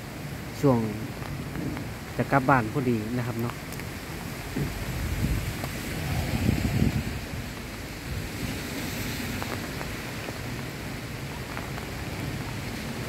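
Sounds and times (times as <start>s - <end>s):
wind rustling leaves and branches: 0.0s - 13.0s
wind buffeting microphone: 4.2s - 13.0s.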